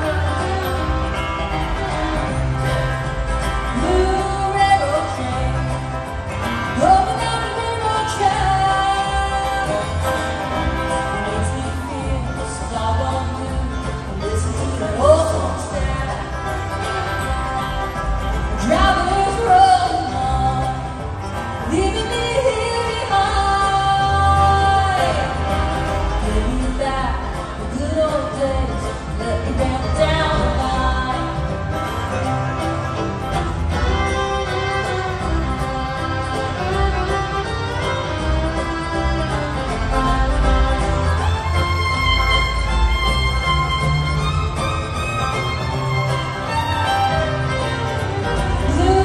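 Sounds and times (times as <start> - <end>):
bluegrass band playing: 0.0 - 49.0
person singing: 6.8 - 16.6, 18.6 - 31.6.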